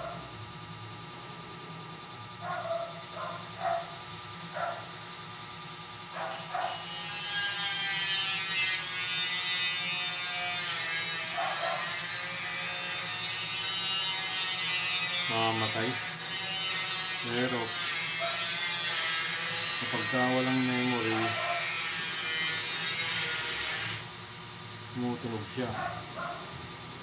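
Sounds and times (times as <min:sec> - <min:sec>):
laptop cooling fan whirring: 0:00.0 - 0:08.0, 0:23.6 - 0:27.0.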